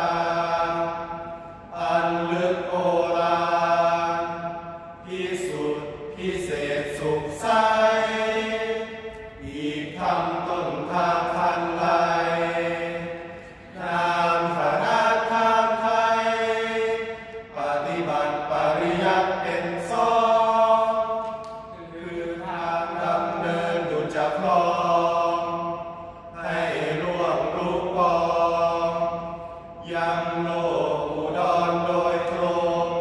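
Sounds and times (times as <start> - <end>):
men chanting: 0.0 - 33.0.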